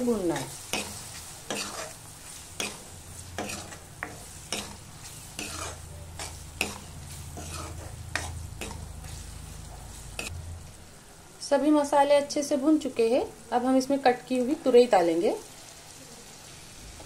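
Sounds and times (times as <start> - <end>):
soft sizzle: 0.0 - 17.0
metal spoon scraping pan: 0.2 - 10.4.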